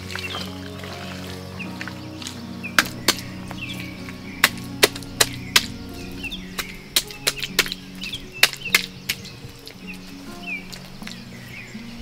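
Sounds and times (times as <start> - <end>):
wet clay slapping: 0.0 - 3.6, 6.6 - 9.9
soft background music: 0.0 - 12.0.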